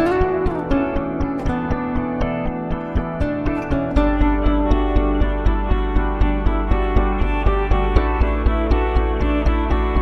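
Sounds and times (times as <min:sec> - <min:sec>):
guitar over steady beat: 0:00.0 - 0:10.0
deep bass: 0:02.8 - 0:10.0.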